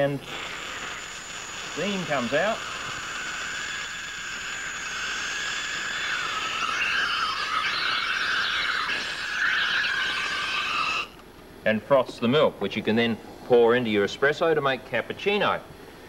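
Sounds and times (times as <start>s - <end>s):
steam wand frothing milk: 0.0s - 11.2s.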